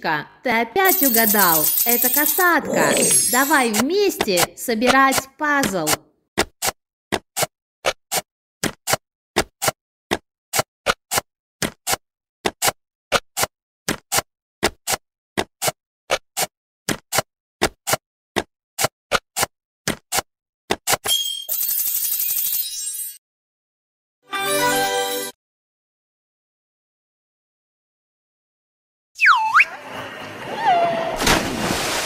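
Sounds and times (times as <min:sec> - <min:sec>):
puzzle pieces clicking: 0:00.8 - 0:04.5.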